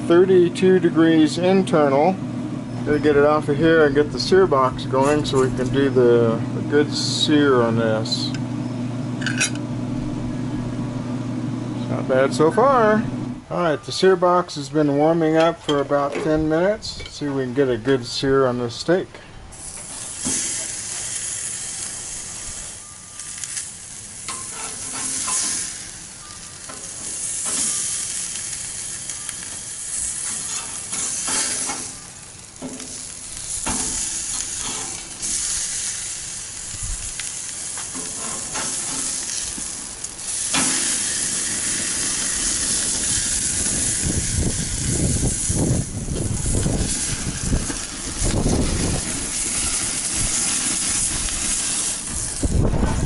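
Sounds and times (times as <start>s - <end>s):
steak sizzling on grill: 0.0s - 8.4s, 19.5s - 53.0s
flames flaring up: 0.0s - 13.5s, 19.5s - 53.0s.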